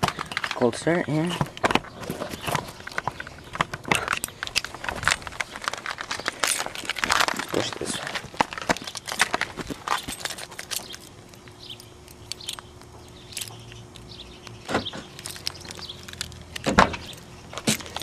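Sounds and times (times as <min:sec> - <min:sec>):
footsteps: 0:01.2 - 0:10.9
keys jangling: 0:03.9 - 0:13.8, 0:15.1 - 0:18.0
car door clunks: 0:14.7 - 0:15.1, 0:16.6 - 0:17.8.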